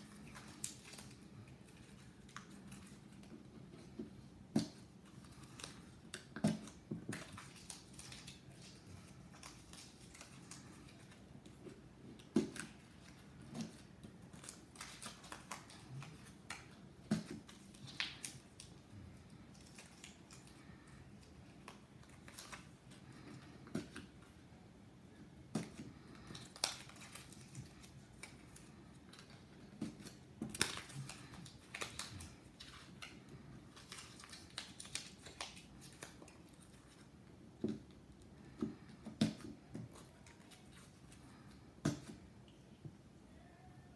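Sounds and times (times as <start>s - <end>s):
paper crinkling and rustling: 0.0s - 24.4s, 25.5s - 42.2s.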